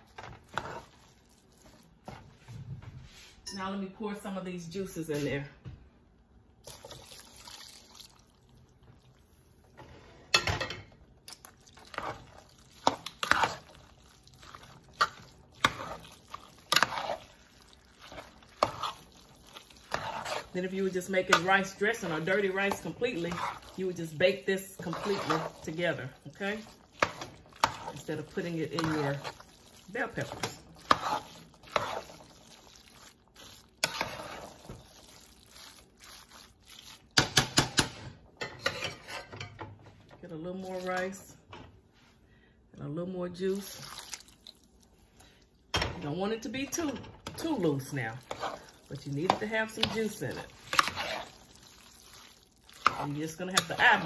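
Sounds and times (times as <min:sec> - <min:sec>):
spoon stirring and scraping pot: 0:00.0 - 0:03.6, 0:09.7 - 0:41.7, 0:43.4 - 0:54.0
liquid pouring into pot: 0:06.6 - 0:09.1.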